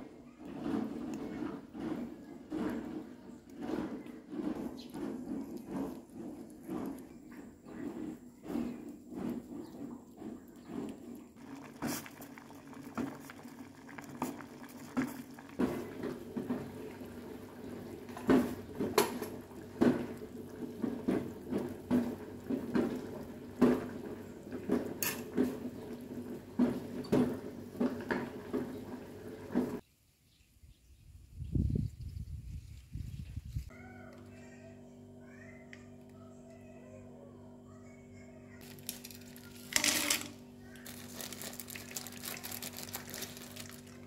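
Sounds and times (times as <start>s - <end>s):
utensils clinking against pots: 18.1s - 29.8s.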